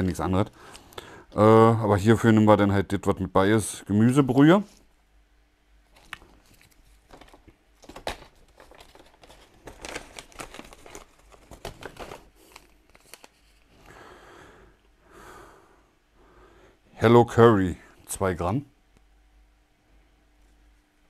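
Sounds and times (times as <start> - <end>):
paper bag crinkling: 5.9 - 13.9.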